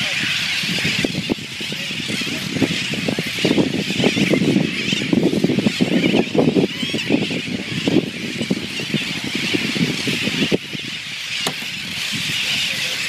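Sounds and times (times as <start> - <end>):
seabirds squealing cries: 0.0 - 13.0.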